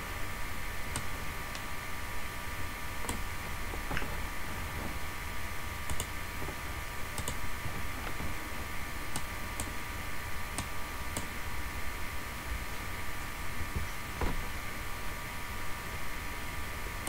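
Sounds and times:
steady background hum: 0.0s - 17.0s
computer mouse buttons clicking: 5.9s - 6.2s, 7.2s - 7.4s.

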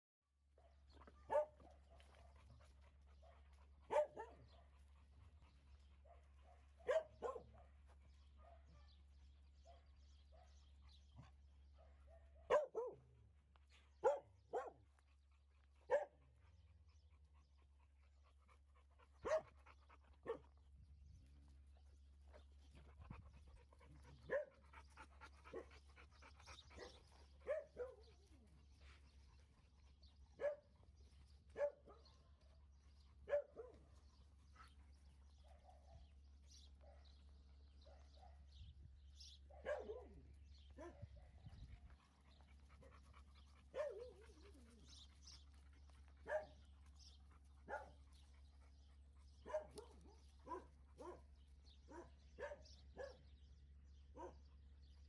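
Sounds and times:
dogs barking: 0.6s - 2.5s, 3.2s - 4.8s, 6.0s - 7.8s, 11.8s - 13.1s, 14.0s - 14.8s, 15.9s - 16.2s, 19.2s - 20.4s, 23.6s - 28.4s, 30.4s - 30.7s, 31.5s - 32.2s, 33.2s - 33.9s, 39.5s - 41.3s, 42.5s - 45.0s, 46.2s - 48.2s, 49.1s - 51.3s, 51.9s - 53.3s, 54.1s - 54.5s.

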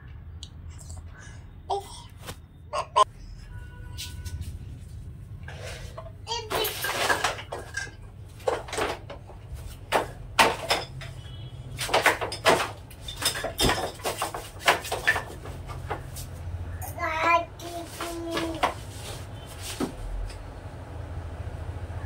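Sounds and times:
plastic toys clattering: 6.0s - 16.2s, 17.6s - 19.2s.

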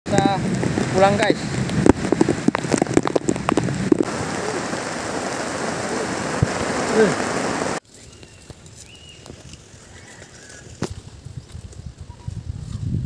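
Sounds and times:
heavy rain pouring: 0.1s - 7.8s.

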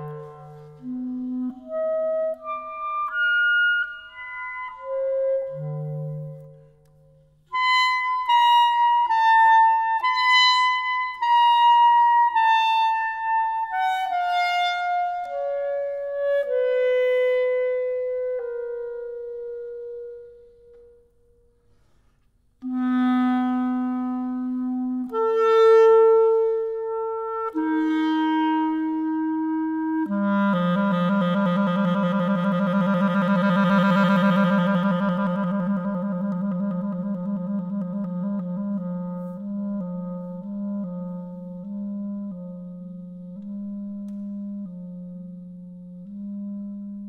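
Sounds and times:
solo wind instrument melody: 0.0s - 22.0s, 22.6s - 47.0s.

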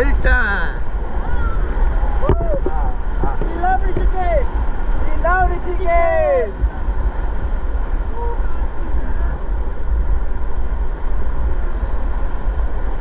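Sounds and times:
rushing river water: 0.0s - 13.0s
wind buffeting microphone: 0.0s - 13.0s
faint voices: 0.1s - 9.8s.

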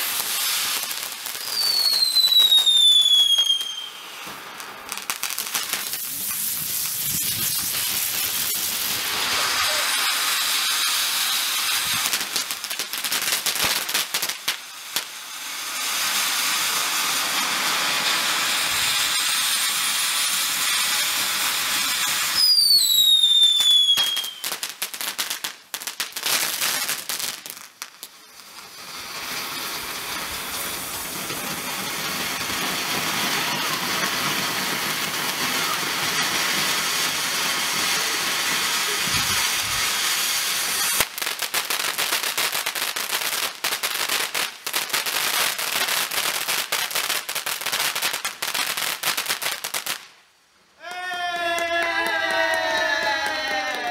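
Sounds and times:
falling firework whistle: 0.0s - 25.1s, 28.2s - 41.4s, 50.8s - 53.9s
fast firework crackling: 0.0s - 50.2s
firework fountains hissing: 0.0s - 50.2s.

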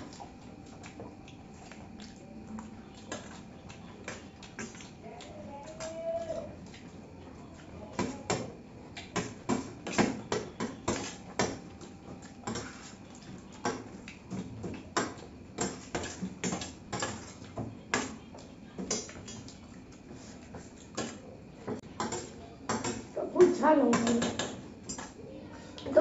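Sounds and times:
chewing puffed rice: 0.0s - 9.2s, 10.5s - 15.5s.

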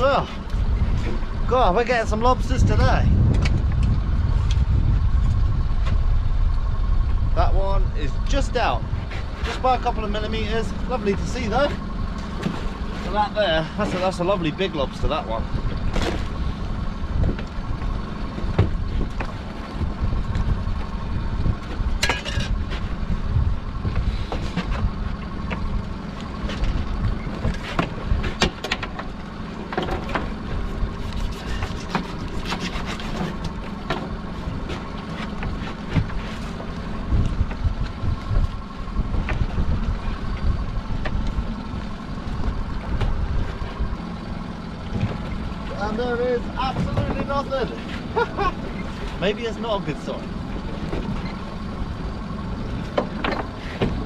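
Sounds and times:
wind buffeting microphone: 0.0s - 12.9s, 15.0s - 26.0s, 35.5s - 45.6s
boat engine running: 0.0s - 54.0s.

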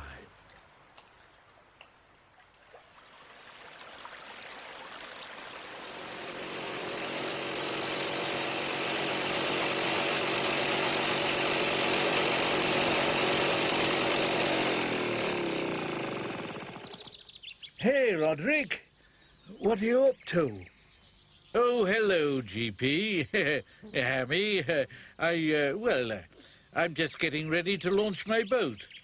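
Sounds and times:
jeep engine buzzing: 5.6s - 17.1s.

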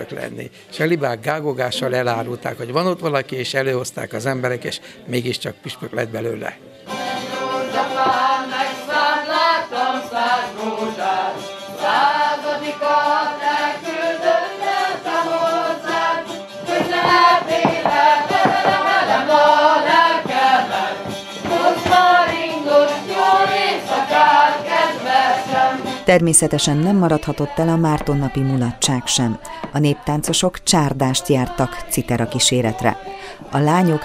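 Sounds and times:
group singing folk song: 6.8s - 34.0s
boots stamping on wooden floor: 16.6s - 22.4s.

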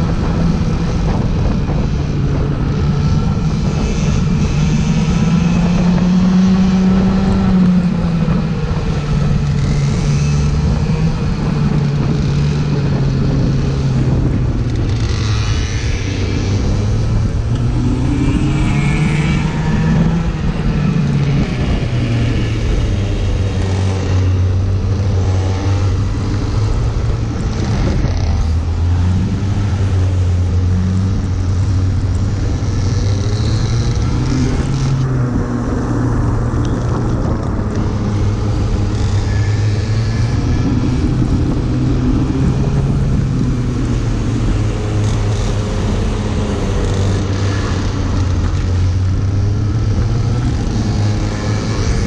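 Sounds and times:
go-kart engines racing: 0.0s - 52.0s.

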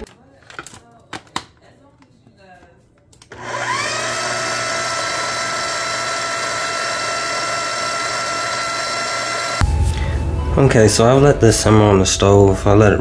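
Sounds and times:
blender motor whine: 3.3s - 9.6s.

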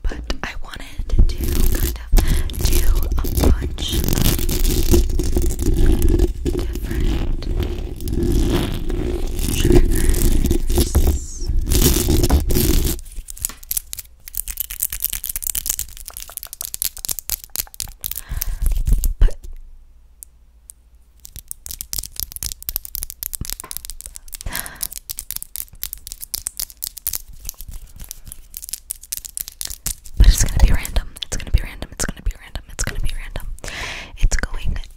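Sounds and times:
nails scratching microphone grille: 1.1s - 13.5s
crackly clicks and taps: 20.2s - 31.6s.

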